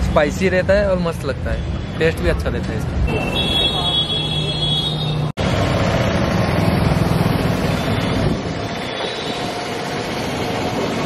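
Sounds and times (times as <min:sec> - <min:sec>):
steady road noise: 0:00.0 - 0:11.0
vehicle engine rumbling: 0:02.2 - 0:11.0.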